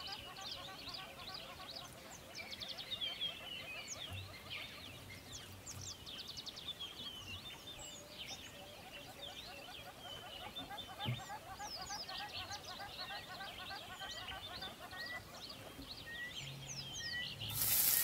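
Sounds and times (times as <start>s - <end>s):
birds chirping: 0.0s - 18.0s
repeated short bird calls: 7.0s - 18.0s.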